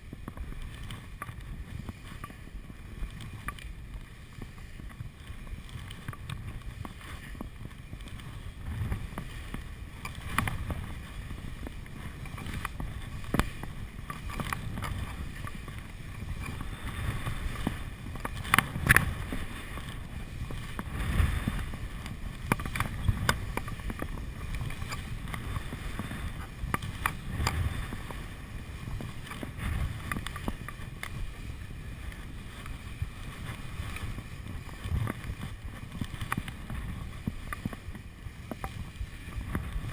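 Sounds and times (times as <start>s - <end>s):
skis hissing over snow: 0.0s - 39.9s
wind rumble on microphone: 0.0s - 39.9s.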